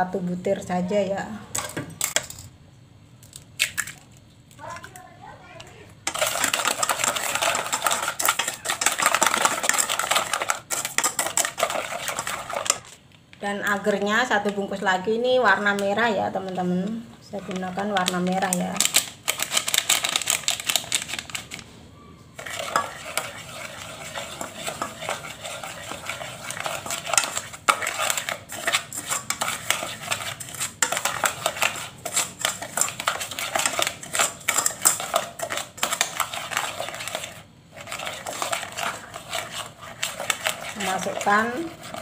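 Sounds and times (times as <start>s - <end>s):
spatula scraping saucepan: 6.0s - 13.0s, 17.2s - 20.3s, 22.4s - 42.0s.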